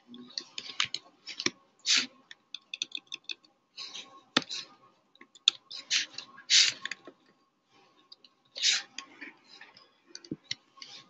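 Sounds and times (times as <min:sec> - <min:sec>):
short hissing sounds: 0:01.8 - 0:02.1, 0:05.8 - 0:06.8, 0:08.6 - 0:08.9.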